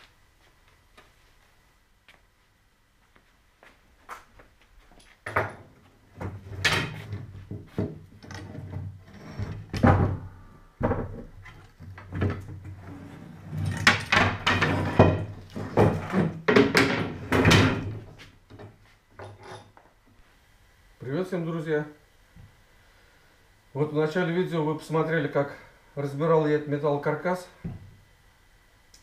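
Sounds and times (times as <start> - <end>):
furniture frame knocking and scraping: 5.3 - 19.4
wood clattering against wood: 9.5 - 12.8, 13.6 - 19.5.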